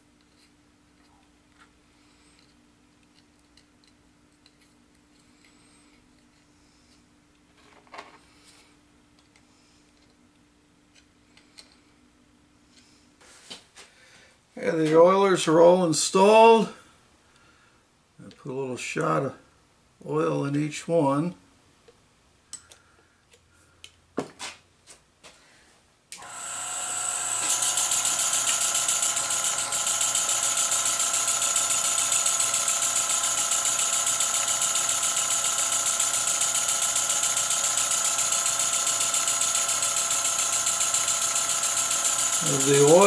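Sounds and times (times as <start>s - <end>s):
model steam engine running: 26.2s - 43.0s.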